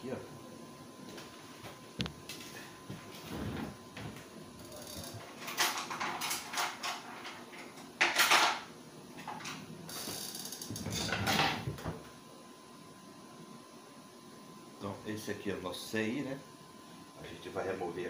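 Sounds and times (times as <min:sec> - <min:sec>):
rustling and crinkling handling noise: 0:01.1 - 0:04.3.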